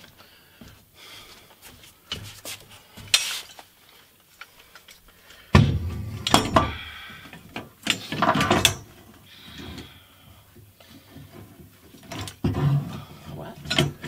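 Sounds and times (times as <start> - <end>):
metal legs clanking and rattling: 5.5 - 9.0, 11.9 - 14.0.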